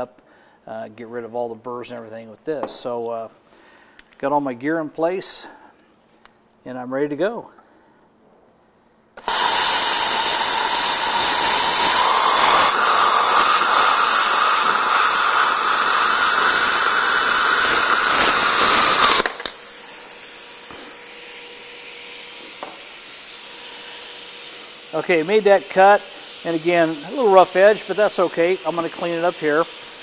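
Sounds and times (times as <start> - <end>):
plasma cutter hissing: 9.2 - 30.0.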